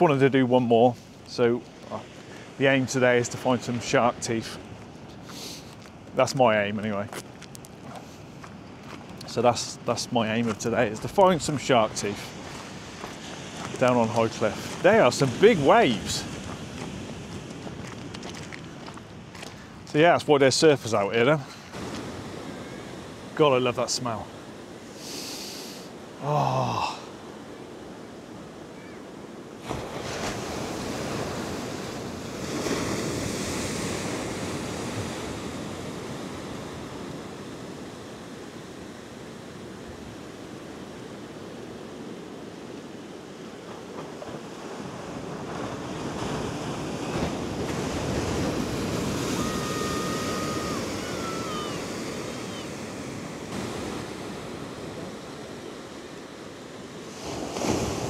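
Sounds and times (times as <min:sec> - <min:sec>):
waves breaking on rocks: 0:08.0 - 0:25.0, 0:29.6 - 0:39.7, 0:43.5 - 0:58.0.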